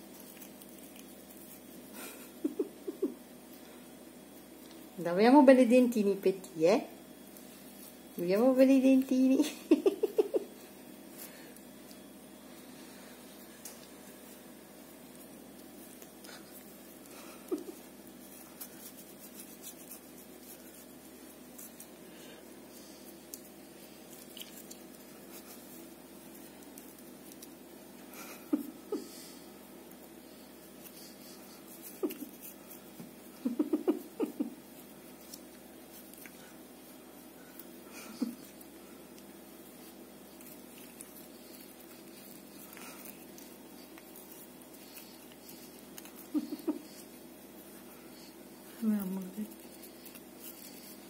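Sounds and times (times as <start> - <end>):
cat chewing toothbrush bristles: 0.0 - 3.1, 9.8 - 51.0
steady low hum: 0.0 - 51.0.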